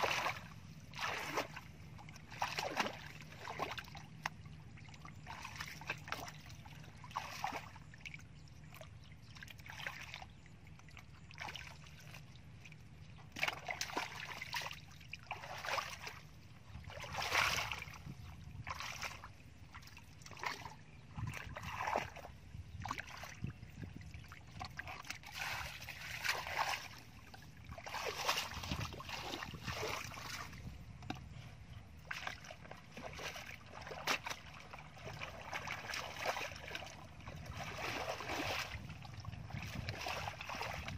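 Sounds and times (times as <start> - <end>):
muddy water splashing and sloshing: 0.0 - 40.9.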